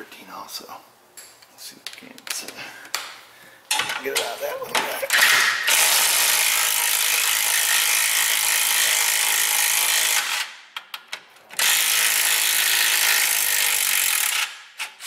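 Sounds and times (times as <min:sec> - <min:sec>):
power wrench spinning: 0:05.1 - 0:10.5, 0:11.6 - 0:15.0.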